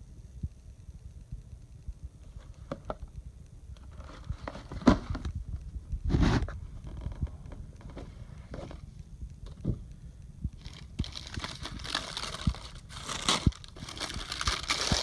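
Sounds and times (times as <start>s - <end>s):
cardboard box rustling: 3.9s - 5.3s, 10.6s - 15.0s
cardboard scrape: 6.1s - 6.6s.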